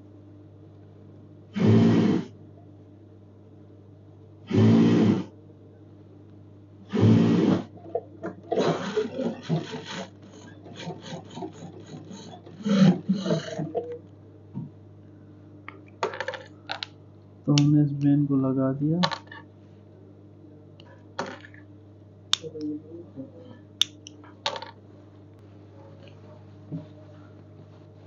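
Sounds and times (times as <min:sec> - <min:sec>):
steady low hum: 0:00.0 - 0:28.0
sewing machine stitching: 0:08.5 - 0:13.8.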